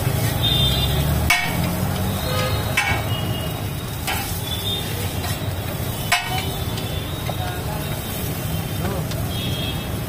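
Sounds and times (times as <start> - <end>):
metal spatula scraping griddle: 0.0 - 0.5, 4.0 - 6.6
light sizzle: 0.0 - 10.0.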